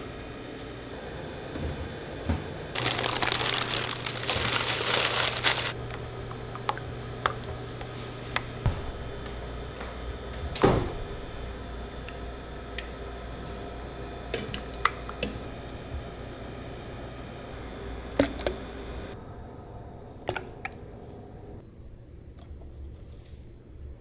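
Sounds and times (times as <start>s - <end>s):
loud rough crackling: 2.8s - 5.8s
low hum: 2.8s - 10.4s.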